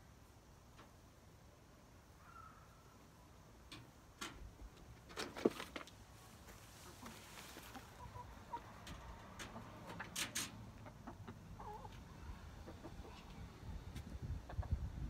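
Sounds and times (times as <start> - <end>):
hens clucking: 4.8 - 15.0.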